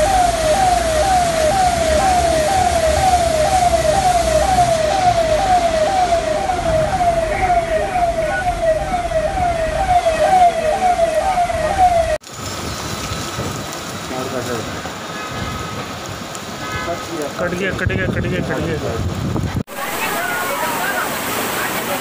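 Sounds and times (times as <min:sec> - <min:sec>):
electronic siren sweeping: 0:00.0 - 0:12.2.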